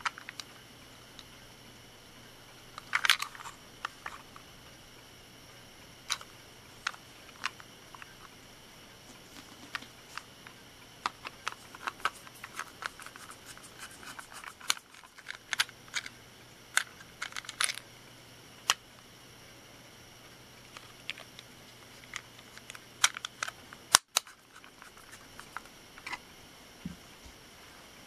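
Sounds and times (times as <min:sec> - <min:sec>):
plastic toy clicks and snaps: 0:22.1 - 0:24.4.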